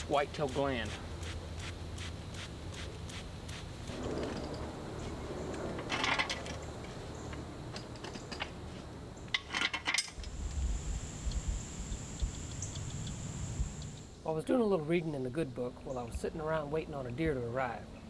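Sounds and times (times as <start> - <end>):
metal clinks and rattles: 4.0 - 4.8, 5.5 - 7.0, 9.3 - 10.3
high-pitched insect buzz: 10.2 - 14.2.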